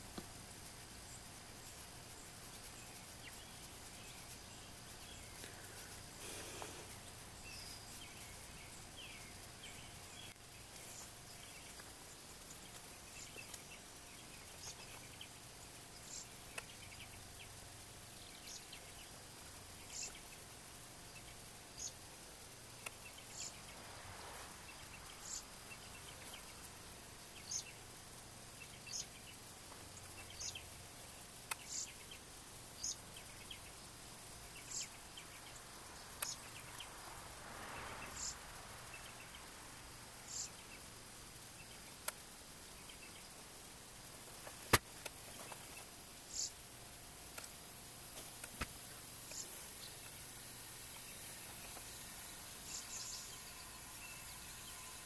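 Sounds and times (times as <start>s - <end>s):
faint steady hum: 0.0s - 55.0s
bird chirping: 0.9s - 22.1s, 22.8s - 37.0s, 37.7s - 39.6s, 40.2s - 43.5s, 44.7s - 46.6s, 49.2s - 55.0s
faint bird calls: 45.4s - 46.6s.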